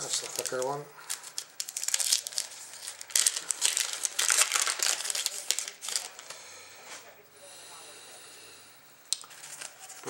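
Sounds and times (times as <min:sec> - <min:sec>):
wrapper crinkling and tearing: 0:00.0 - 0:06.4.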